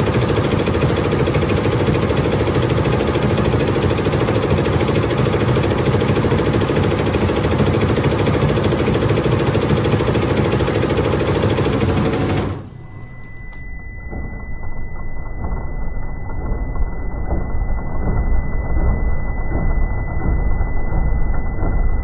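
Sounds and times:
embroidery machine clattering: 0.0s - 13.3s
faint steady high tone: 12.5s - 22.0s.

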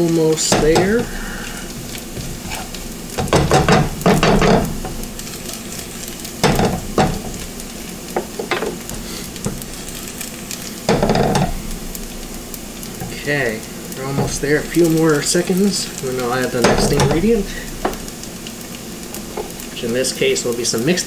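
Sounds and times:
garlic sizzling in hot oil: 0.0s - 21.0s
spatula scraping a wok: 0.5s - 7.5s, 8.2s - 12.2s.

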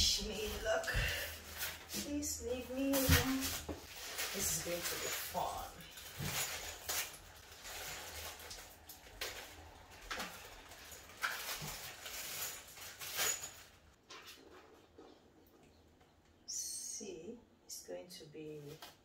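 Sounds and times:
plastic bag crinkling: 0.0s - 14.0s.

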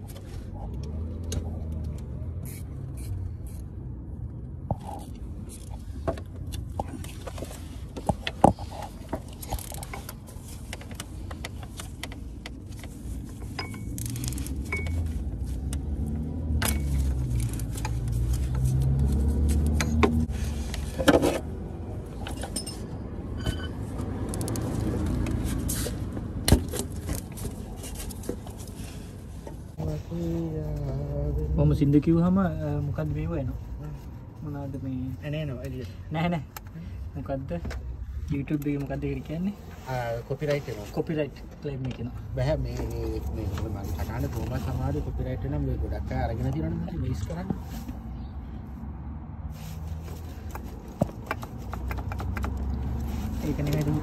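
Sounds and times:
low vehicle rumble: 0.0s - 35.3s.

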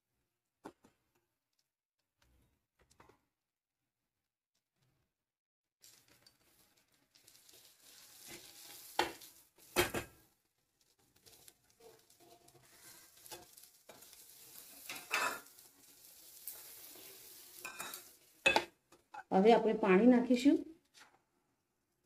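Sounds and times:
lentils sizzling in hot oil: 5.8s - 19.2s
spoon scraping and knocking on pot: 11.8s - 14.2s, 14.8s - 15.5s, 17.6s - 19.3s.

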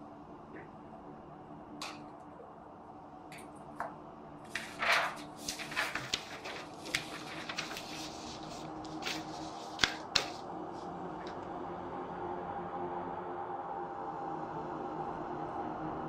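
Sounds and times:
paper rustling: 4.5s - 10.4s.

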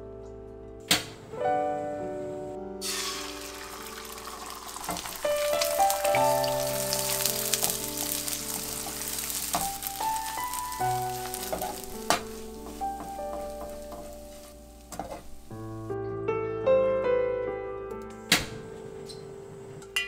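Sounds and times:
background music: 0.0s - 20.0s
eggs sizzling in hot oil: 2.8s - 15.6s.

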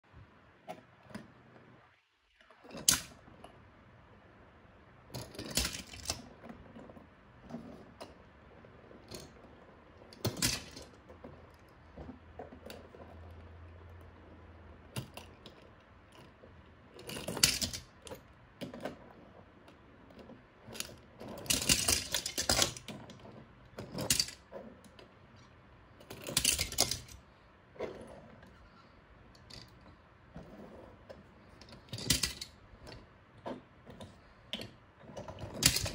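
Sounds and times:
toy cars rolling on wood: 2.4s - 3.7s, 5.1s - 35.9s
metal toy cars clattering: 2.6s - 3.3s, 5.1s - 8.2s, 8.8s - 13.5s, 14.9s - 19.2s, 20.1s - 27.2s, 29.4s - 35.9s.

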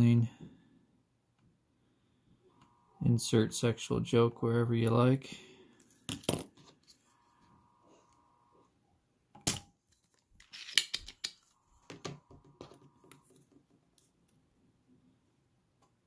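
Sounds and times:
clicks and scraping: 9.4s - 14.4s.

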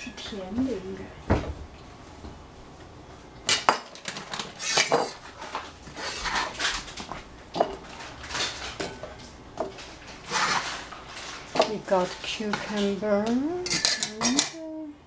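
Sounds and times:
cucumber slices scraping on board: 5.9s - 6.8s, 10.2s - 10.8s.

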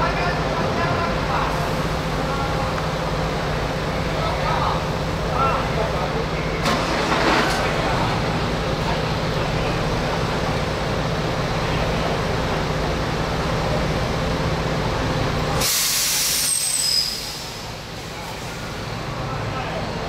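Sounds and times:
diesel engine rumbling: 0.0s - 20.0s
compressed air hiss: 15.6s - 17.7s
short falling whistle: 16.4s - 17.4s.

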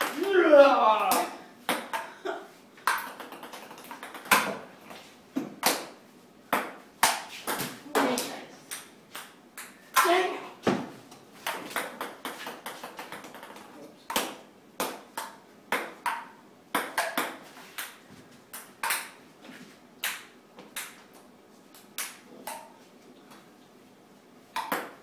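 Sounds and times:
ping pong balls clicking: 1.1s - 2.2s, 2.8s - 4.6s, 6.5s - 10.1s, 11.4s - 19.2s, 20.0s - 21.2s, 21.9s - 23.4s, 24.5s - 25.0s.

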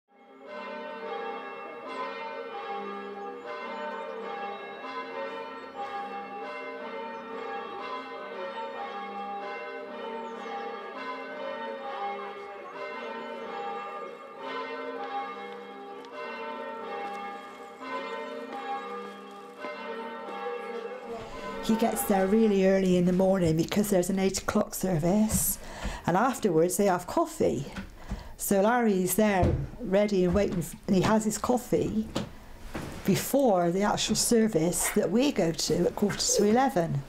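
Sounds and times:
church bells ringing: 0.1s - 27.6s, 33.2s - 37.0s.

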